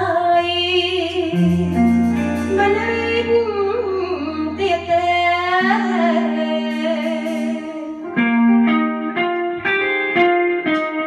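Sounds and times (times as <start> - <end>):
woman singing with vibrato: 0.0 - 8.1
electric guitar plucked notes: 0.0 - 11.0.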